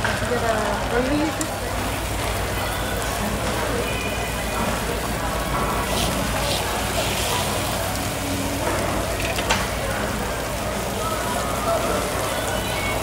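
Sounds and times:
meat sizzling on a grill: 0.0s - 13.0s
metal tongs clinking on grill: 8.7s - 9.8s.

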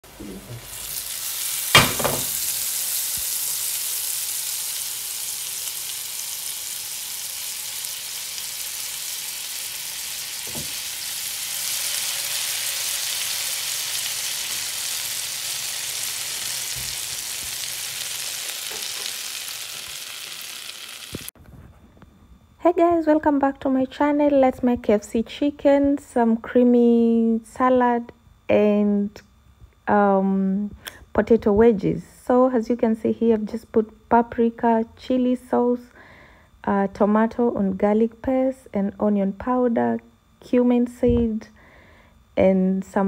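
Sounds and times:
food sizzling in hot oil: 0.1s - 21.4s.

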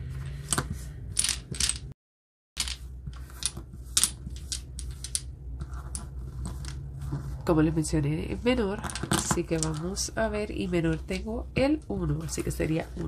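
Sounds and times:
domino tiles clicking on tabletop: 1.2s - 1.8s, 2.6s - 5.3s.

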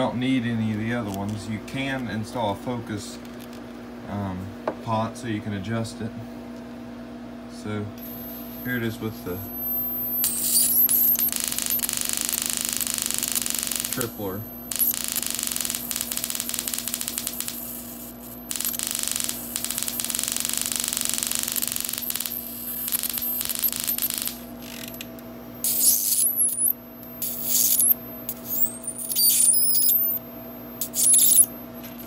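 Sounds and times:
high-pitched whine: 8.0s - 32.0s
high-voltage arc crackling buzz: 8.0s - 32.0s.

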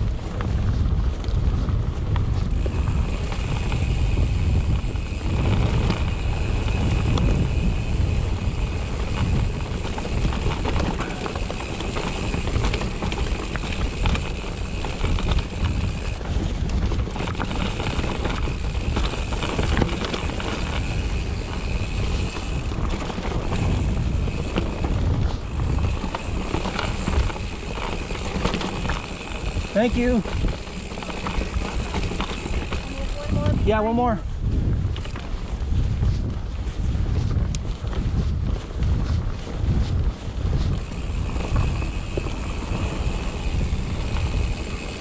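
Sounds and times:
bike rattling over rocks: 0.0s - 45.0s
wind buffeting microphone: 0.0s - 45.0s.

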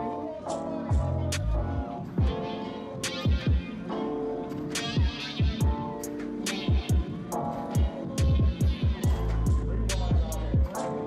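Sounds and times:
hip hop beat: 0.0s - 11.0s.

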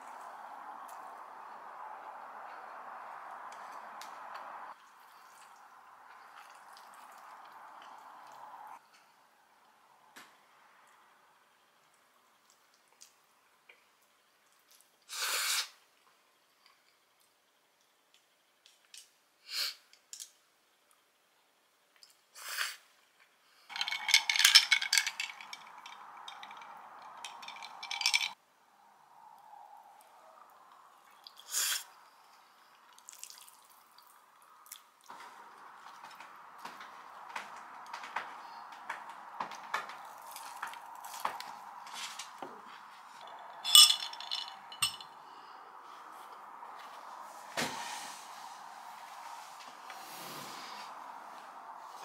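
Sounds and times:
soft eating sounds: 4.7s - 9.7s, 10.8s - 15.1s, 29.9s - 36.2s
sipping hiss: 15.0s - 15.8s, 22.3s - 23.0s, 31.1s - 34.1s, 47.6s - 51.2s
ice cubes clinking in glass: 23.7s - 28.4s, 43.6s - 45.0s.

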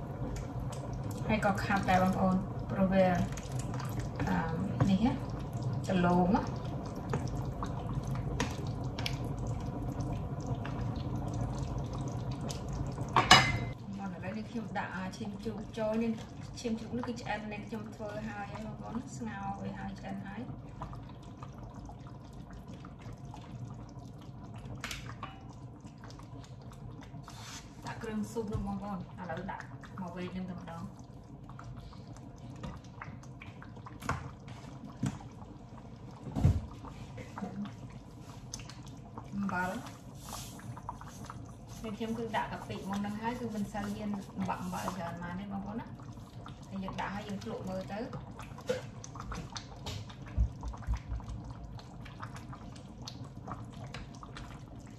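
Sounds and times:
soup bubbling in a pot: 0.0s - 54.9s.

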